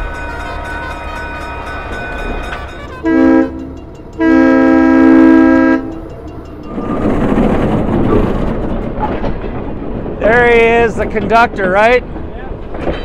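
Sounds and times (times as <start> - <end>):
locomotive air horn chord: 0.0 - 6.1.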